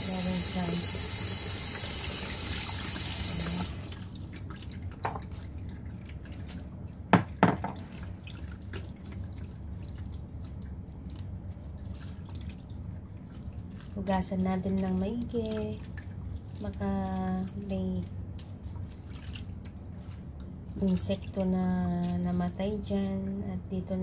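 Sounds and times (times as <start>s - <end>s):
tap running into a bowl: 2.9s - 3.7s
water dripping: 7.8s - 23.0s.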